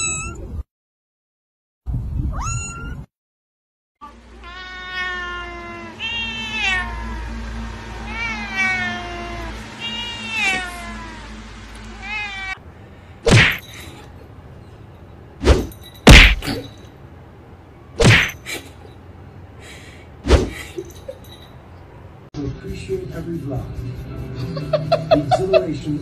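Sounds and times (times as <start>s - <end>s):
cat meowing: 2.3s - 3.1s, 4.4s - 7.4s, 8.0s - 12.6s
sharp thumps: 13.3s - 13.8s, 15.4s - 16.8s, 18.0s - 18.4s.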